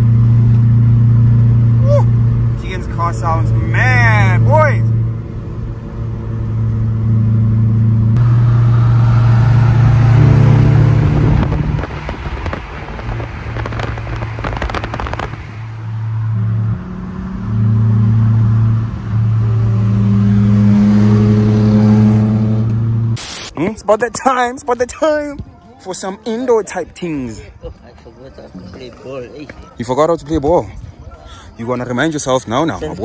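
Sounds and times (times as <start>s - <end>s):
car exhaust droning: 0.0s - 23.5s
exhaust crackling pops: 8.2s - 16.0s.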